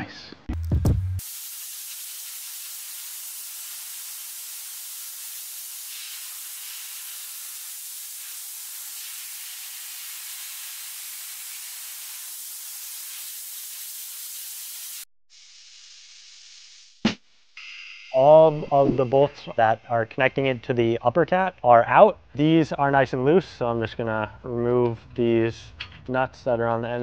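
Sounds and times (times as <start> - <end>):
steady hiss: 1.2 - 20.5.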